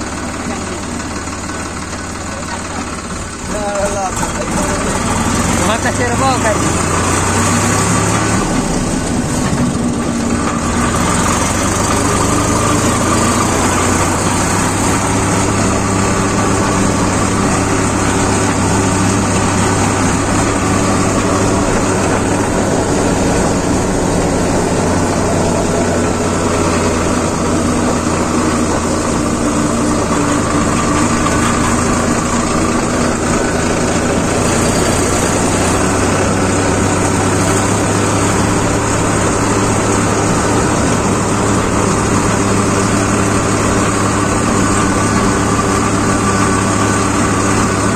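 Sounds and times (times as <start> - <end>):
tractor diesel engine running: 0.0 - 47.9.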